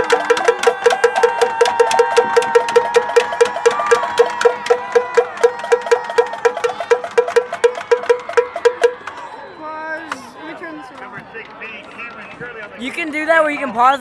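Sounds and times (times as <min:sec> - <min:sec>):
fast cowbell-like percussion beat: 0:00.0 - 0:09.1
steady held tone: 0:00.0 - 0:09.2.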